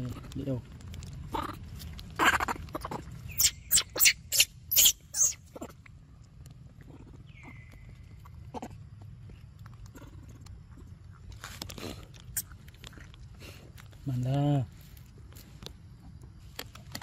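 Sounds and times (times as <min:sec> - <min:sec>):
baby monkeys crying shrilly: 0:02.2 - 0:05.7.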